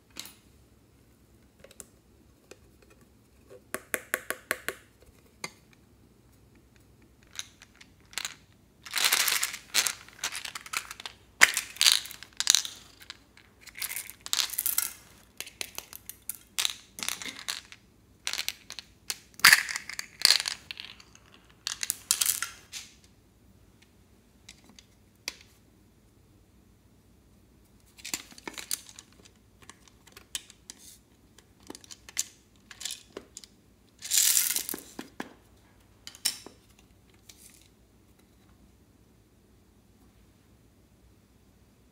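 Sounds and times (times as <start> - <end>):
plastic beads clicking and rattling: 7.2 - 22.9, 28.0 - 30.8, 31.6 - 35.0.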